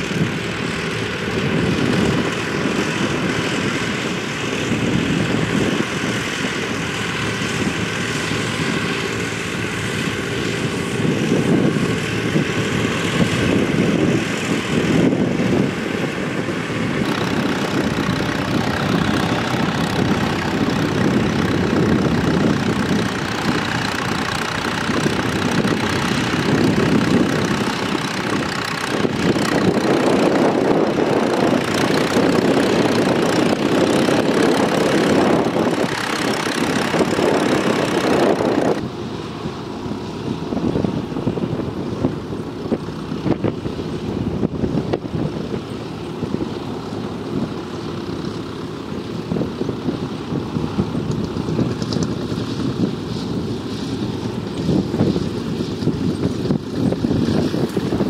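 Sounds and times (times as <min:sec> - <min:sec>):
tractor engines running: 0:00.0 - 0:58.0.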